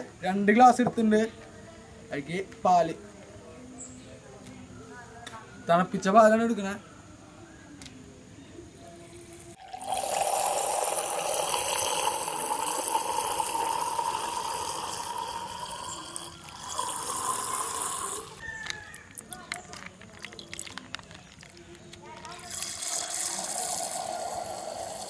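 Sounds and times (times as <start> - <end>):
milk pouring into a glass: 9.6 - 25.0.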